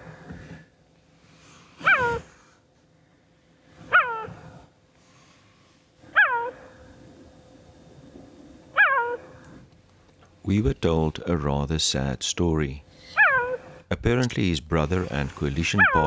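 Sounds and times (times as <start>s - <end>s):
cheetah yelping calls: 1.8s - 2.4s, 3.8s - 4.5s, 6.1s - 6.8s, 8.7s - 9.5s, 13.0s - 16.0s.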